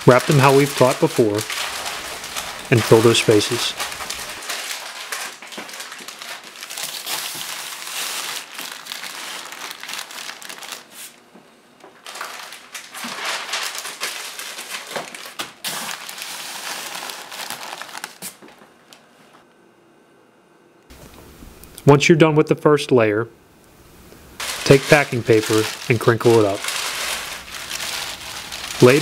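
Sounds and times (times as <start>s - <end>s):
packing paper crinkling: 0.0s - 11.2s, 12.0s - 18.6s, 24.4s - 29.0s.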